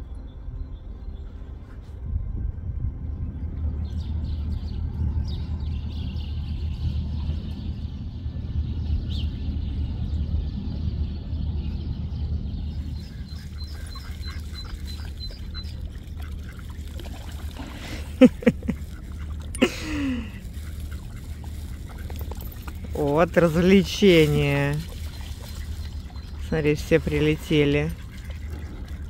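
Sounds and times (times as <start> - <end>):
wind rumble on microphone: 0.0 - 29.0
dog splashing in water: 13.4 - 29.0.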